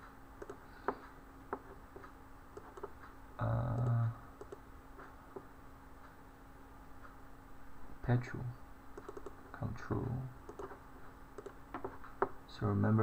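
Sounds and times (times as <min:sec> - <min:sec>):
faint electrical hum: 0:00.0 - 0:13.0
computer mouse clicks: 0:00.4 - 0:04.6, 0:09.0 - 0:09.4, 0:10.4 - 0:10.8, 0:11.4 - 0:12.3.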